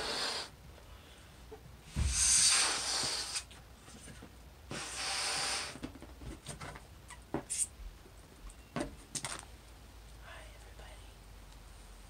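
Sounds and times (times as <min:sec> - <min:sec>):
breath blown into balloon: 0:00.0 - 0:00.6, 0:01.9 - 0:03.6, 0:04.7 - 0:05.8.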